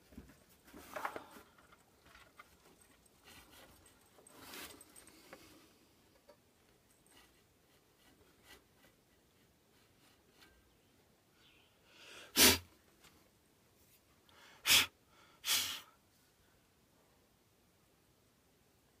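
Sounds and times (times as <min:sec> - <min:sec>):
short rustle: 0:00.0 - 0:05.8.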